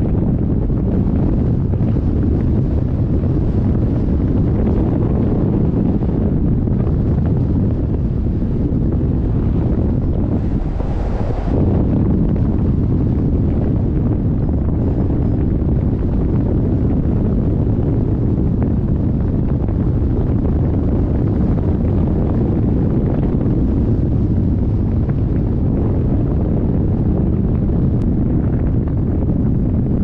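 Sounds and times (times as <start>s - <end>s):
wind rumble on microphone: 0.0s - 30.0s.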